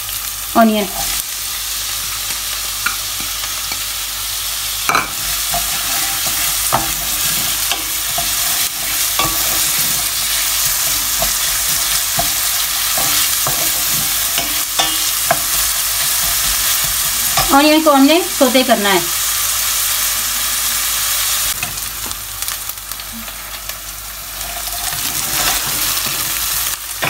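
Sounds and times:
onion sizzling in oil: 0.0s - 27.0s
wooden spoon scraping a pan: 5.0s - 17.7s, 24.4s - 26.6s.

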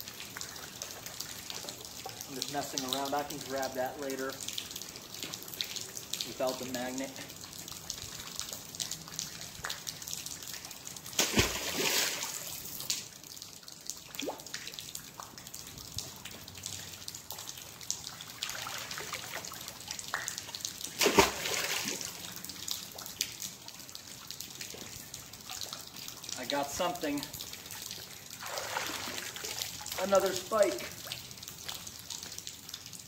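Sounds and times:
water trickling and dripping: 0.0s - 33.0s
magnet splashing into river: 11.2s - 12.5s, 21.0s - 22.1s.

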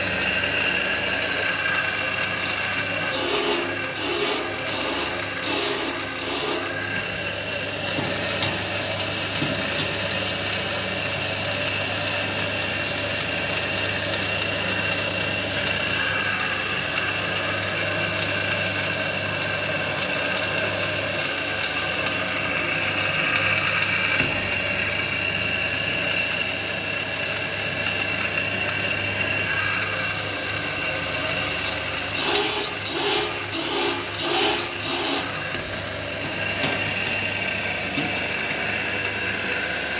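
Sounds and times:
grinding machine hum and whine: 0.0s - 39.9s
rasping grinding strokes: 2.2s - 7.1s, 31.6s - 35.5s.

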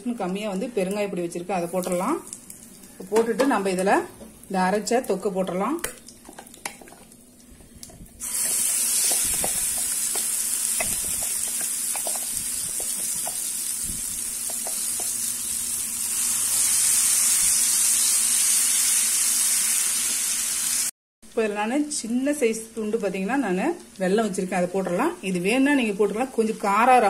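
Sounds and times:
paste sizzling in hot oil: 6.0s - 20.9s
spatula scraping and tapping: 6.3s - 13.5s, 14.4s - 15.2s.

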